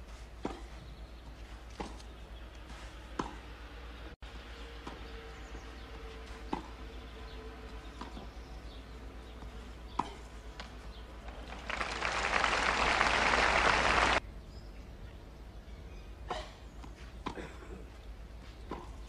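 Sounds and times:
faint steady hiss: 11.6 - 14.2.

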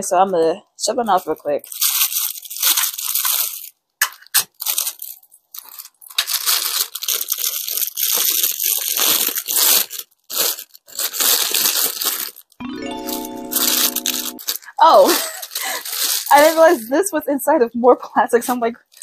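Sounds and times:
packaging crinkling and tearing: 1.2 - 12.6, 13.6 - 17.0.

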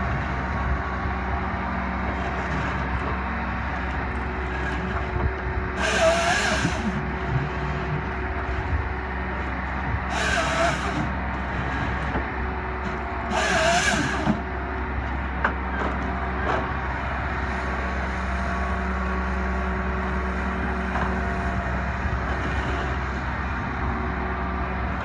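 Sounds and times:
diesel engine under hydraulic load: 0.0 - 25.0
hydraulic hissing bursts: 13.3 - 14.4.

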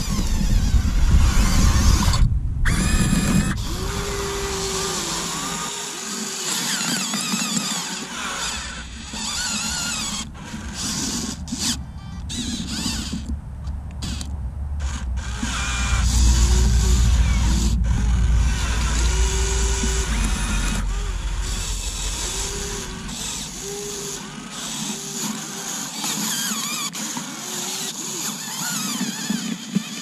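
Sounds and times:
low rumble: 0.0 - 5.6, 8.1 - 25.7
electric motors whining: 0.0 - 30.0.

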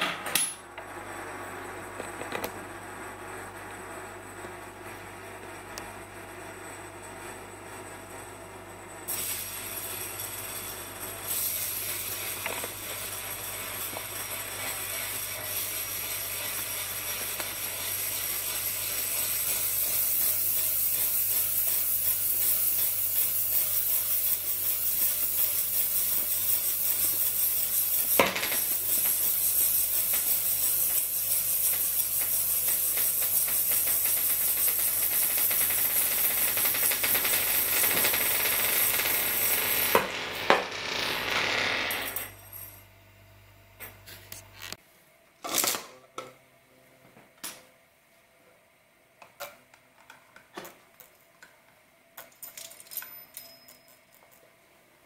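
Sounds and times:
spinning top whirring on glass: 9.1 - 42.8.

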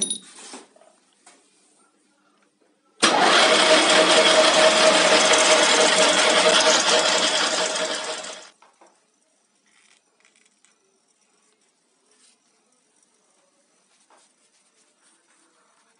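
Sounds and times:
metal lathe running: 3.0 - 8.5.

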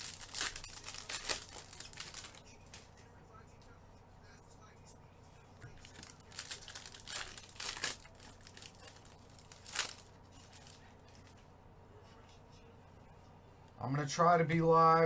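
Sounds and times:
card pack wrappers crinkling and ripping: 0.0 - 2.4, 5.6 - 11.3.

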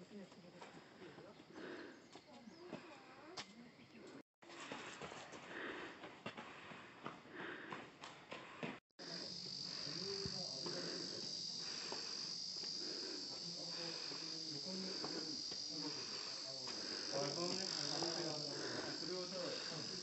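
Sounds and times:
faint voices: 9.0 - 12.2, 12.8 - 20.0
high-pitched insect chorus: 9.0 - 20.0.

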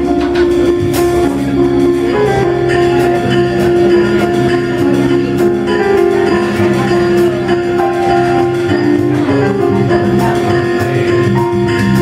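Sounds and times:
electric bass: 0.0 - 12.0
electric guitar: 0.0 - 12.0
piano: 0.0 - 12.0.

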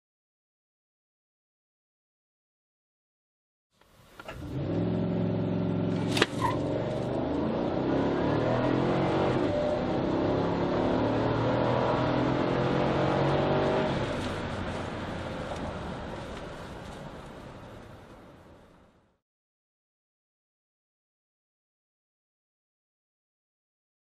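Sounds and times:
car engine accelerating hard: 4.3 - 16.7.

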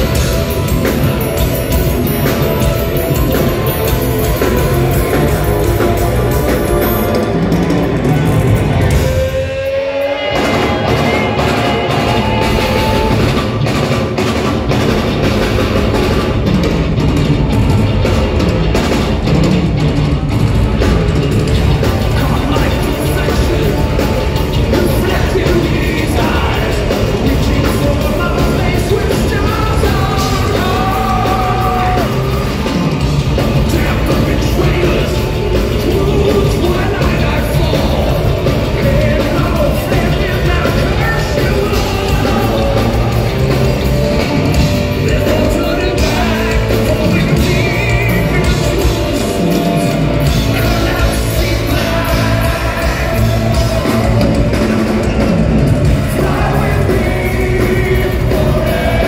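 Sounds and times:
bass guitar: 0.0 - 59.0
distorted electric guitar: 0.0 - 59.0
drums: 0.0 - 59.0
keyboards: 0.0 - 59.0
man singing belted vocals: 21.8 - 59.0.

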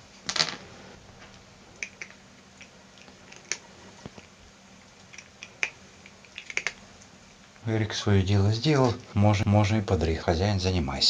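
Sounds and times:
cat crunching dry kibble: 1.8 - 7.5.

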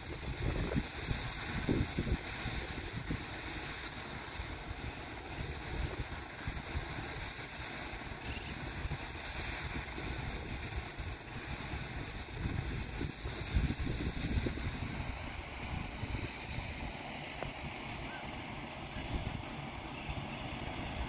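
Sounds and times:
wind buffeting microphone: 0.0 - 3.4, 4.4 - 7.4, 8.5 - 18.0.

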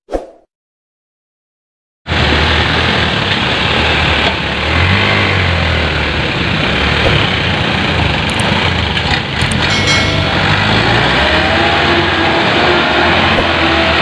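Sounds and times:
diesel truck engine under load: 2.1 - 9.7.

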